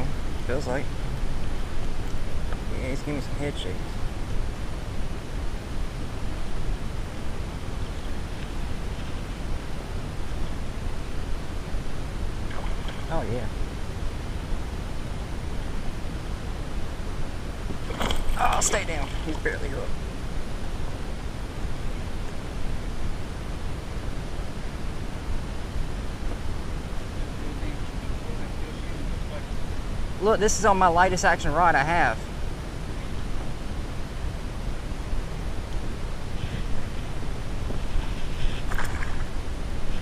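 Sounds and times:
wind rumbling on microphone: 0.0s - 30.4s, 32.2s - 40.0s
wind on microphone: 32.3s - 40.0s.

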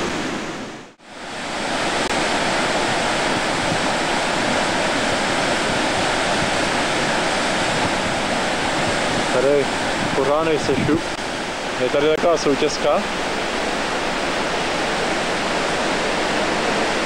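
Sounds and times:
whitewater rapids rushing: 0.0s - 17.0s.

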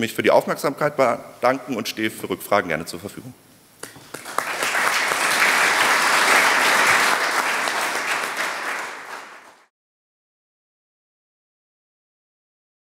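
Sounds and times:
audience applauding: 3.9s - 9.7s.

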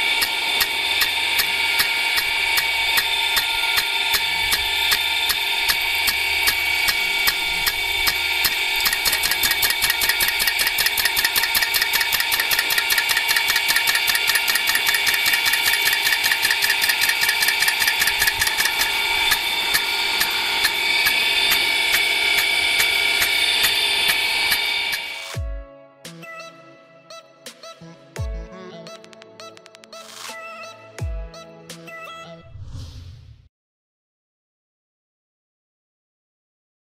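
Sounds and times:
sprinkler arm ticking: 0.2s - 25.1s.

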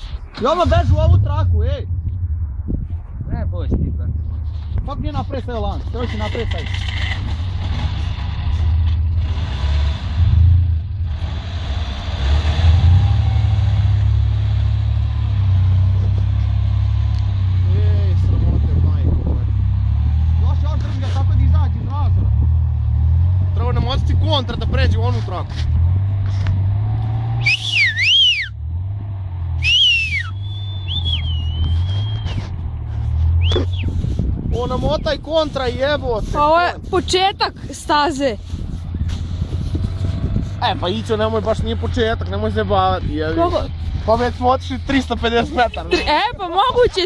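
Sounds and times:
engines rumbling under load: 0.0s - 47.0s
person whistling: 27.4s - 28.6s, 29.6s - 32.5s, 33.4s - 33.9s.

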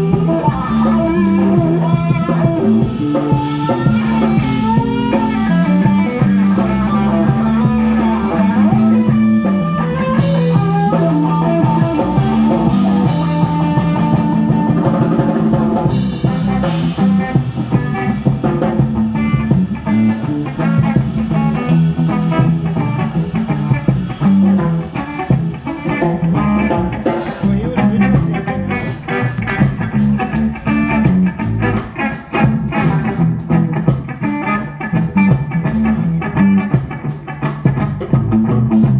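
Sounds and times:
bass line: 0.0s - 38.9s
drum kit: 0.0s - 38.9s
electric guitar: 0.0s - 38.9s.

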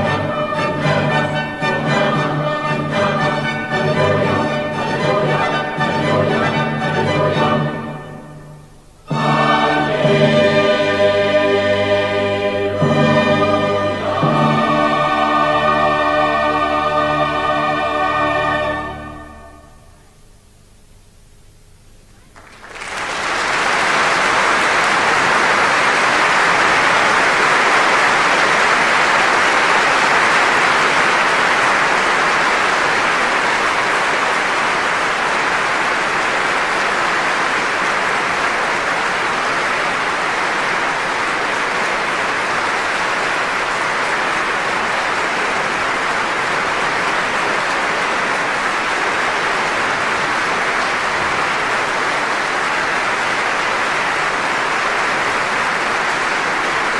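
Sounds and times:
audience applauding: 22.3s - 56.9s.

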